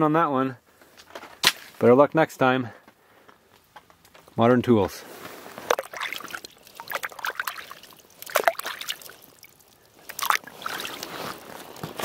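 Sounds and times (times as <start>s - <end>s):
water splashing and trickling: 5.4s - 12.0s.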